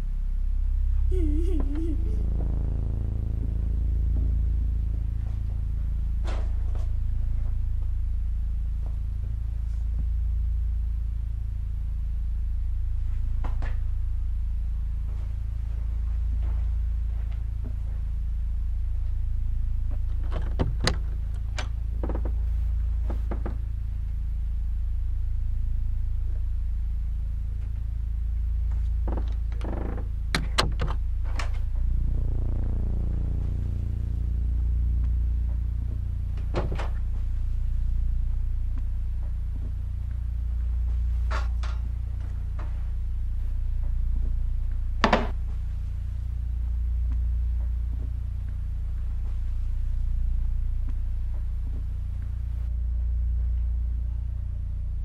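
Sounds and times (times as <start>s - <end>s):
low droning music: 0.0s - 55.0s
doors clicking and knocking: 20.2s - 22.4s, 29.1s - 31.6s.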